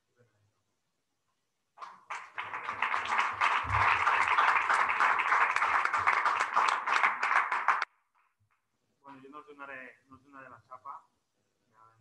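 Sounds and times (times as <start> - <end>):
people applauding: 1.8 - 7.9.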